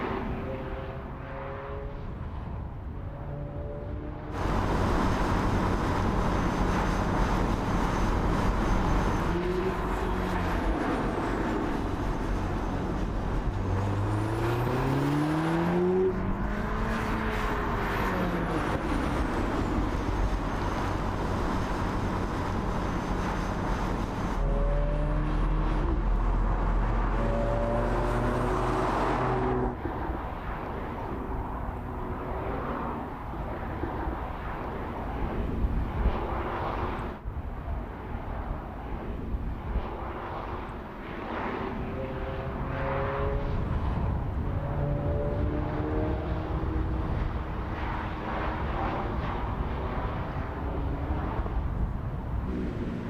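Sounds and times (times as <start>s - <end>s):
car engine accelerating: 24.2s - 29.8s.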